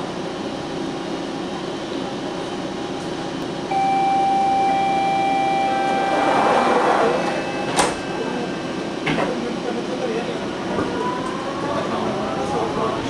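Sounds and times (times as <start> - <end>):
ventilation hum: 0.0 - 13.0
door closing warning tone: 3.7 - 8.8
rushing noise: 5.7 - 9.0.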